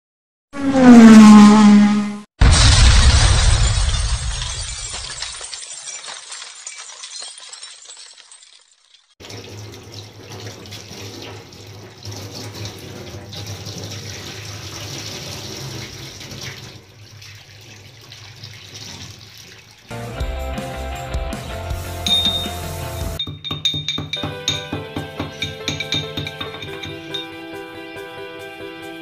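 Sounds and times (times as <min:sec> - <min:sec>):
tap water running into steel bowl: 0:09.2 - 0:19.9.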